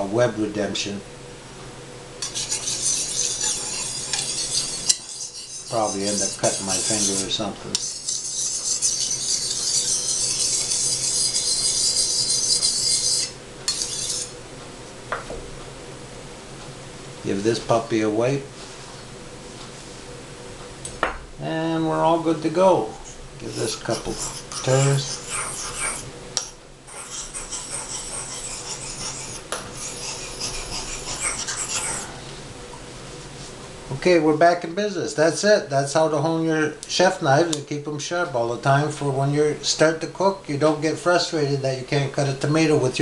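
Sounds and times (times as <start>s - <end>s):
sharpening stone scraping knife: 2.2s - 14.3s, 23.5s - 26.1s, 26.9s - 32.1s.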